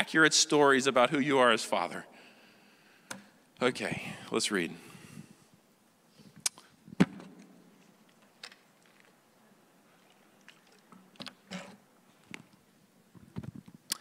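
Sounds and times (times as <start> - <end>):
man gulping water: 10.0 - 11.3.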